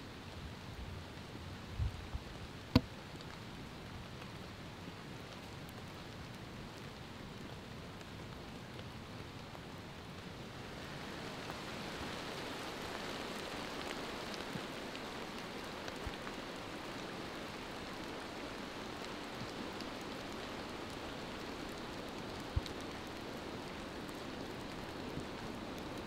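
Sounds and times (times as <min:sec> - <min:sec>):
rain falling on leaves: 0:00.0 - 0:26.0.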